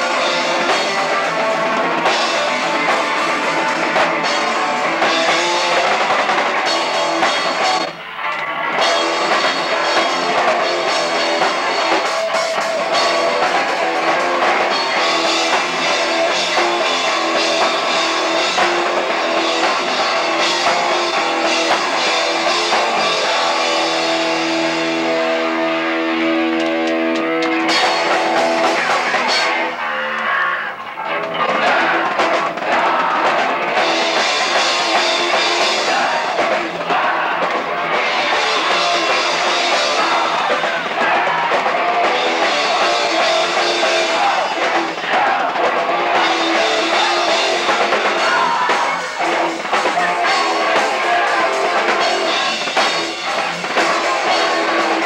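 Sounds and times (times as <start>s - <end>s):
punk band playing live: 0.0s - 55.0s.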